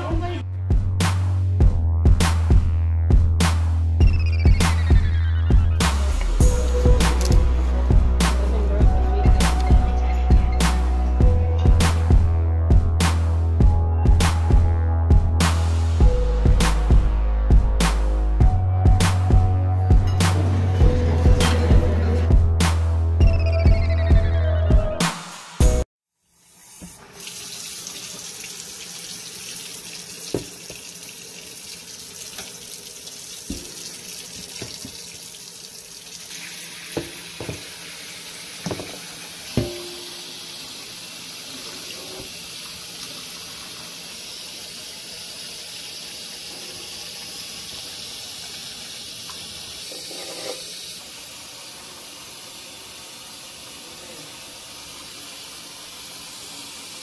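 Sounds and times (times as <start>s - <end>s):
faucet running into sink: 26.4s - 57.0s.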